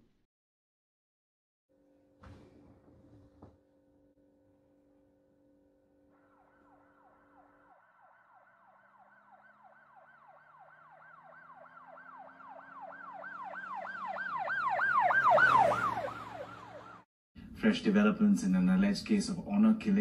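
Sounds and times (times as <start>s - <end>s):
emergency siren yelping: 6.2s - 17.1s.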